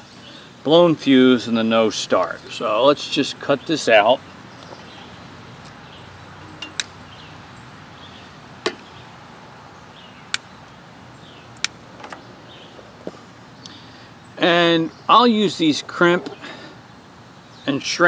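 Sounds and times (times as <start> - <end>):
wire cutters snipping: 6.4 - 7.0.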